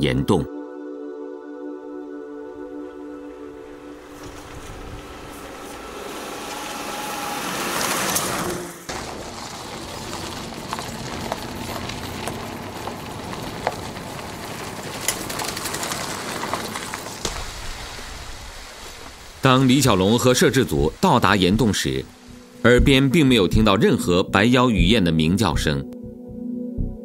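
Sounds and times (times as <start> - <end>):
car engine driving: 3.2 - 23.7
tyres on gravel: 3.6 - 22.0.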